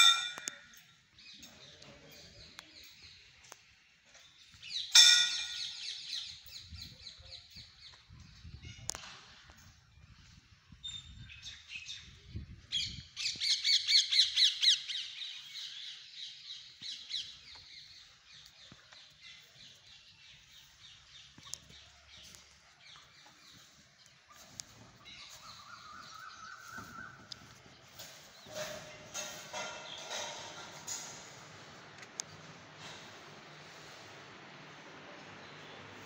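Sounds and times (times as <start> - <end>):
birds calling harshly: 12.8 - 31.2.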